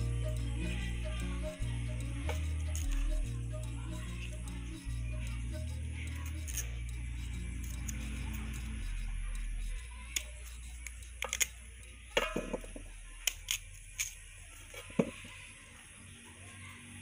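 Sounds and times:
background music: 0.0 - 8.8
knife cutting potato: 6.1 - 11.7.

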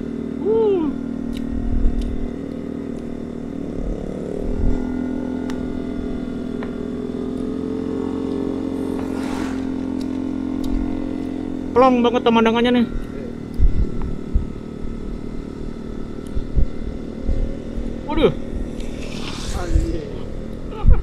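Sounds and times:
scooter engine running: 0.0 - 9.0, 9.8 - 19.0
brief whoosh: 8.7 - 11.1, 18.4 - 20.7.

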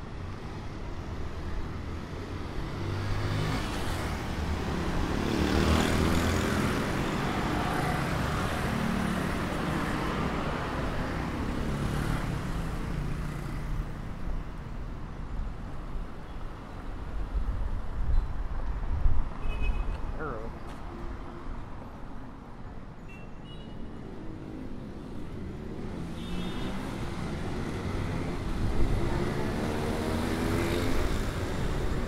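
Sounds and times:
cars passing close by: 0.6 - 14.9, 24.0 - 32.0.

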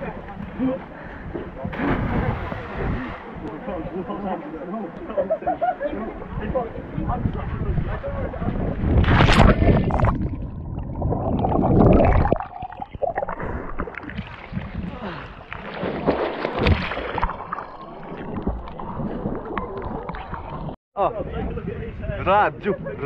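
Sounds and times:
water sloshing and splashing: 8.9 - 20.8
muffled underwater bubbling: 9.2 - 15.3.

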